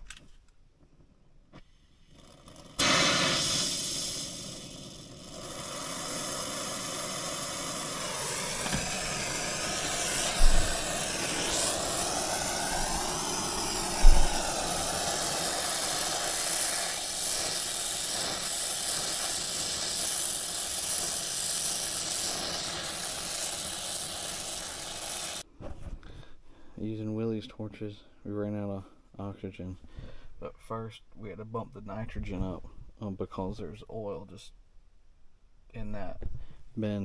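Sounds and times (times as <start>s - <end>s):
torch flame hissing: 1.8s - 25.5s
short low thumps: 10.3s - 10.9s.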